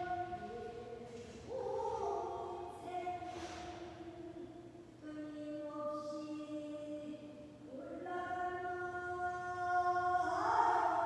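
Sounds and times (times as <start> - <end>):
person singing long held notes: 0.0 - 6.3.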